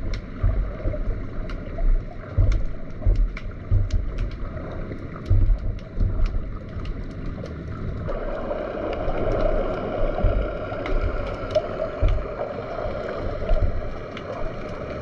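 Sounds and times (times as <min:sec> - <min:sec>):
low underwater thumps: 0:00.0 - 0:07.2, 0:09.0 - 0:14.6
muffled underwater rush: 0:00.0 - 0:15.0
sharp underwater clicks: 0:00.0 - 0:15.0.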